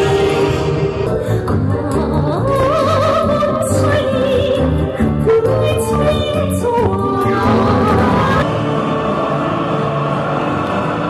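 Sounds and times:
woman singing with vibrato: 0.0 - 8.5.

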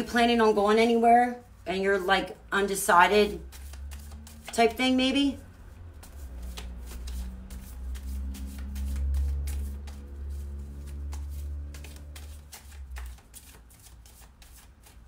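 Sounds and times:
cards being shuffled: 3.3 - 4.8, 5.4 - 15.0.

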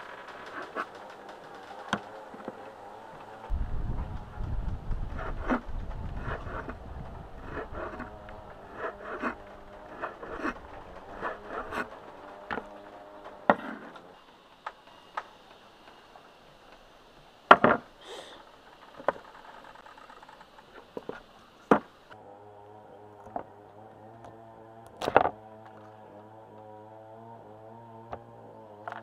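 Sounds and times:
knife scraping cutting board: 5.1 - 5.6, 6.2 - 6.8, 7.4 - 12.7.

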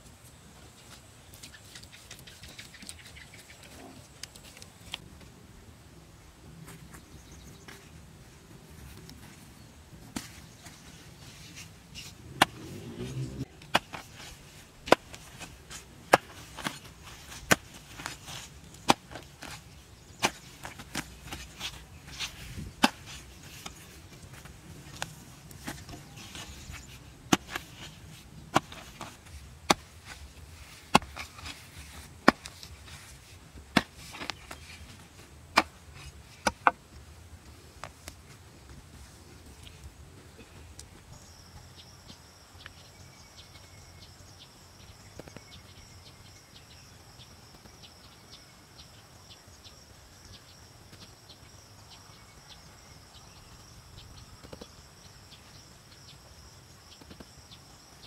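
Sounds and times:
hoe chopping into soil: 12.2 - 32.7, 33.7 - 34.6, 35.5 - 35.8.

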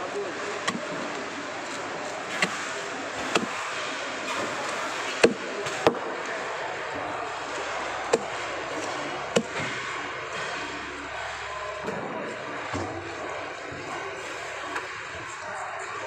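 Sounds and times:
cleaver chopping on block: 0.6 - 1.0, 2.3 - 3.6.

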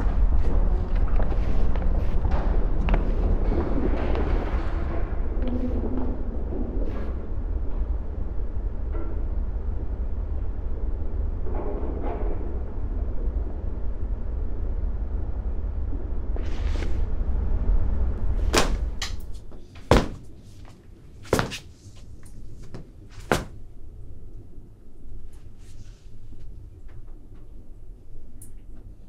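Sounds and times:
low rumbling drone: 0.0 - 19.5.

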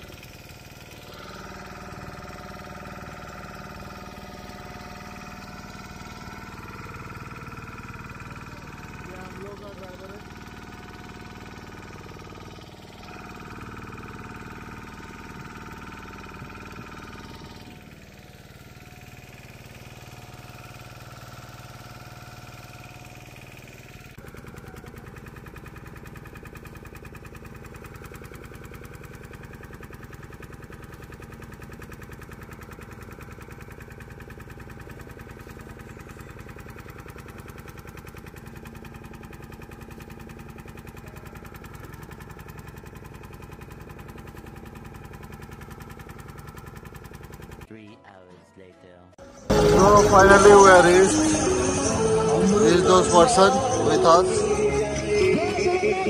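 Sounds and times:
motorboat engine running: 0.0 - 47.7, 49.2 - 56.0.

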